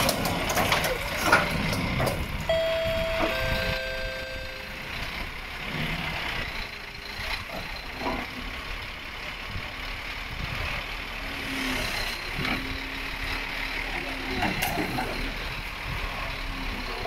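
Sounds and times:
truck engine running: 0:00.0 - 0:11.4.

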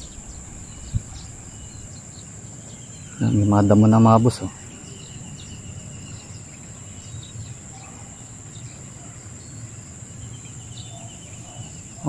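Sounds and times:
low rumble: 0:00.0 - 0:02.8
insects droning: 0:00.0 - 0:12.0.

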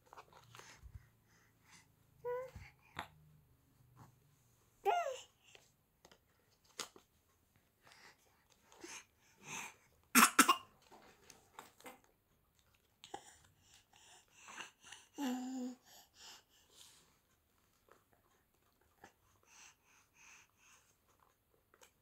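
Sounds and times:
baby coughing: 0:10.2 - 0:10.7
baby breathy sounds: 0:13.1 - 0:17.0.

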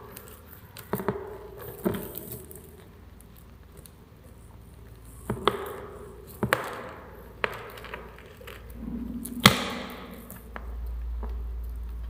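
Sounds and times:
low hum: 0:08.7 - 0:12.0.

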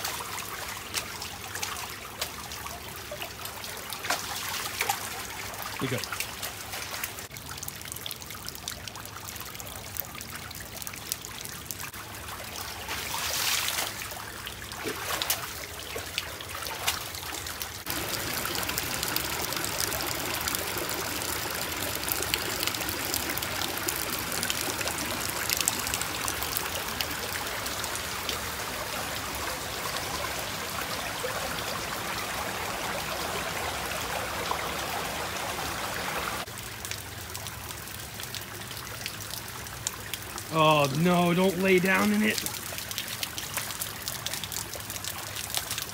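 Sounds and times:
water rushing over stone: 0:12.6 - 0:36.5, 0:40.4 - 0:45.9.

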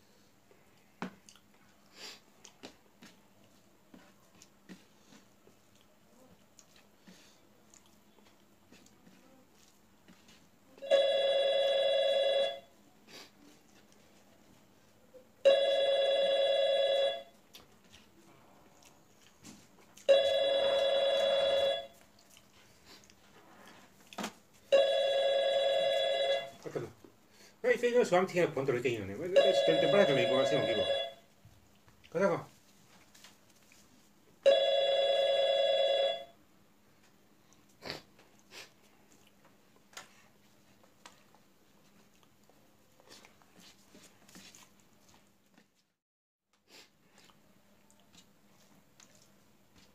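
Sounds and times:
phone ringtone: 0:10.8 - 0:12.7, 0:15.4 - 0:17.3, 0:20.1 - 0:22.0, 0:24.7 - 0:26.6, 0:29.3 - 0:31.2, 0:34.4 - 0:36.3.

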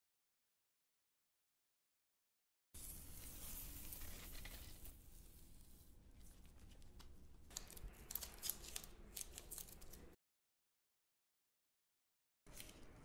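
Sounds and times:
candle flame hiss: 0:02.8 - 0:06.0.

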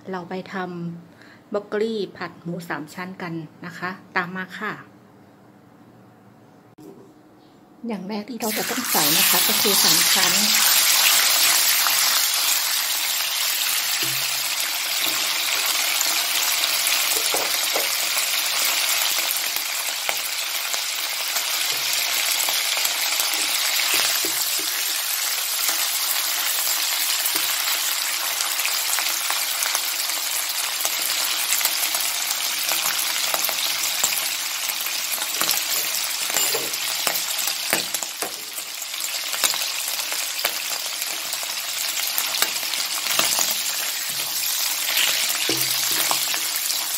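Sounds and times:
pork sizzling in hot oil: 0:08.4 - 0:46.9
spatula clicking and scraping: 0:42.4 - 0:46.9.

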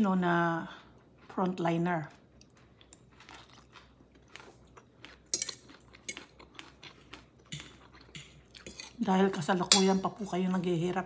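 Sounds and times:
person chewing food: 0:00.6 - 0:09.0.

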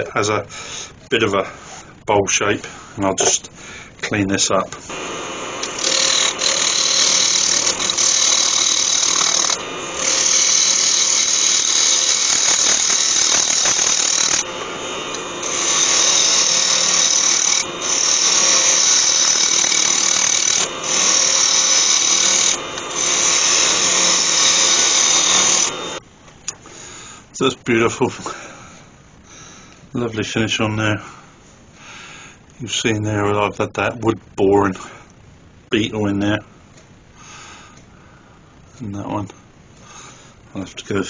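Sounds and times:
gouge cutting wood on lathe: 0:04.9 - 0:26.0.

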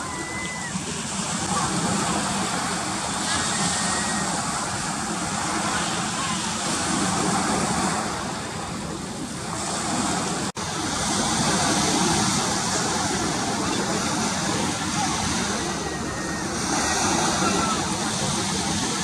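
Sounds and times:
surf washing onto beach: 0:00.0 - 0:19.0.

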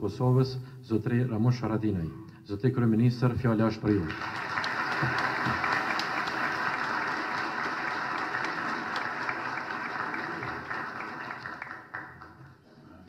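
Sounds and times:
audience applauding: 0:03.9 - 0:12.6.

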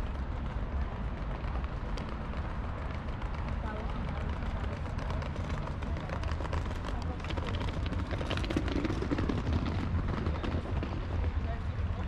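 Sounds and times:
passers-by chatter: 0:00.0 - 0:12.0
traffic rumble: 0:00.0 - 0:12.0.

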